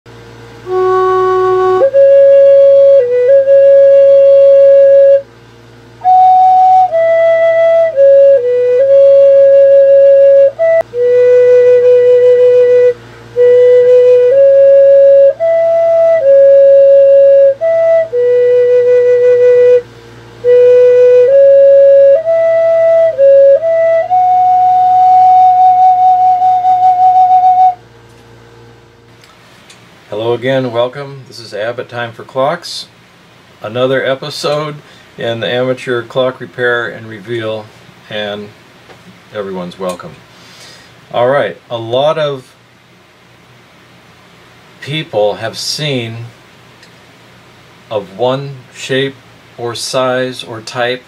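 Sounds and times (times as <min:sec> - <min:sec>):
wooden flute melody: 0:00.6 - 0:05.4, 0:06.0 - 0:27.8
person breathing: 0:34.8 - 0:35.2, 0:40.3 - 0:41.0.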